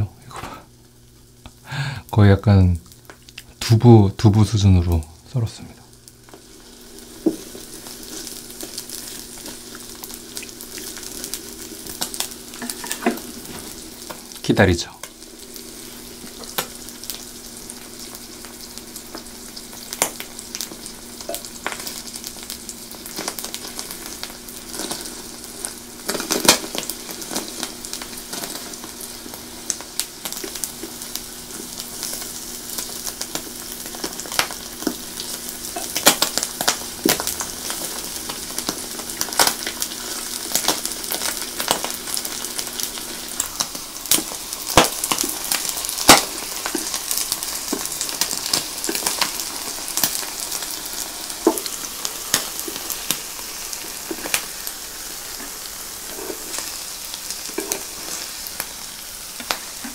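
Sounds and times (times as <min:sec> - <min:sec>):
cheese sizzling in a pan: 0:00.0 - 0:59.9.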